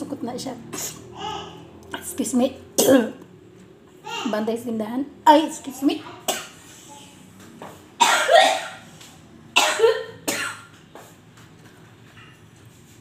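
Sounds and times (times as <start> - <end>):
woman coughing: 2.8 - 3.2, 8.0 - 8.8, 9.6 - 10.7.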